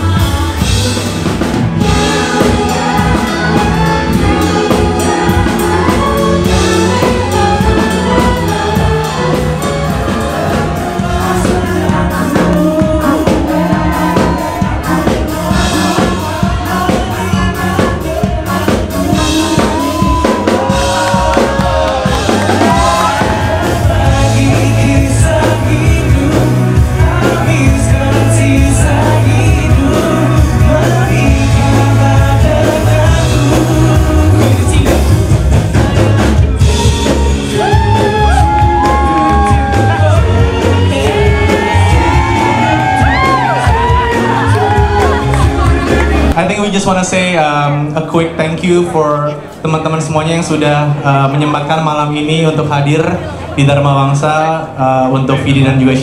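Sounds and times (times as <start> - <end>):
woman singing pop song: 0.0 - 46.3
bass guitar: 0.0 - 56.0
drums: 0.0 - 56.0.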